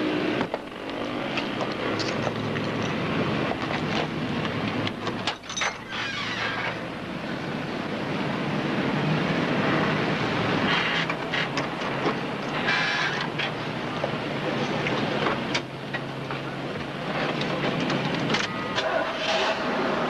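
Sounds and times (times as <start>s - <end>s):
rumbling vehicle noise: 0.0s - 20.0s
noisy scrapes: 18.9s - 20.0s.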